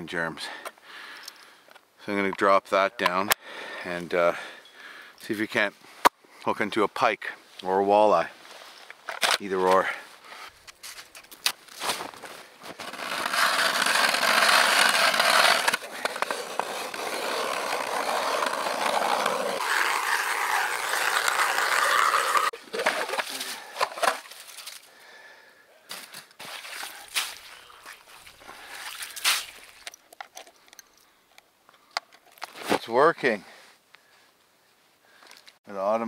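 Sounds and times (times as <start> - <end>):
ice auger grinding through ice: 12.6 - 24.2.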